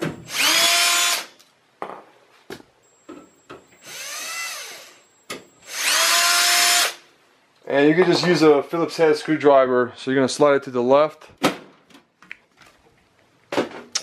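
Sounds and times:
power drill motor whining: 0.3s - 1.3s, 3.8s - 5.0s, 5.6s - 7.0s.

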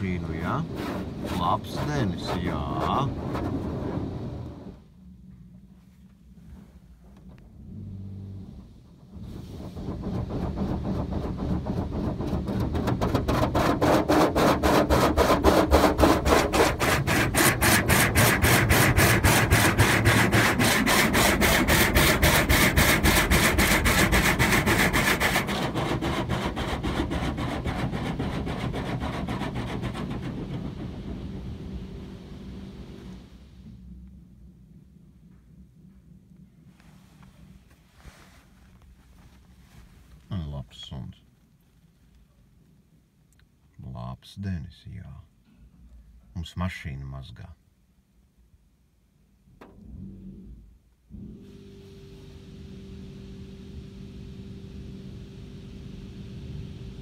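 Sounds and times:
car wash water spray pulsing: 0.0s - 4.9s, 7.6s - 33.8s, 51.4s - 57.0s.

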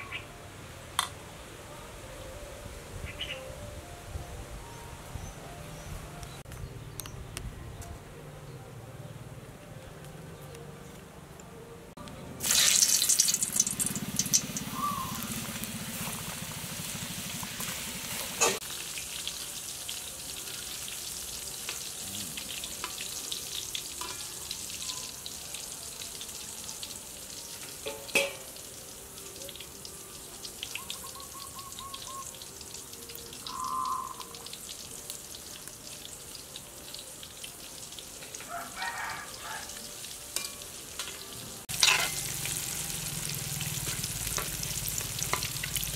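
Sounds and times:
food sizzling in hot oil: 12.4s - 45.9s.

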